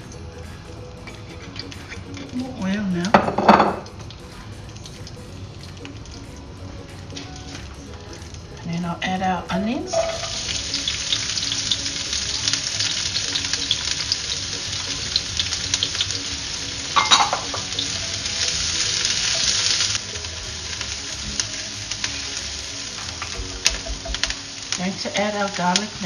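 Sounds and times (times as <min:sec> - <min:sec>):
onion sizzling in hot oil: 0:00.0 - 0:26.0.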